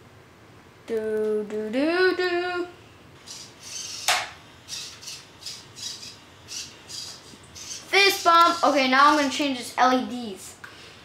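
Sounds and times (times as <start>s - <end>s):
servo motors whirring: 3.2s - 4.1s, 4.7s - 9.3s.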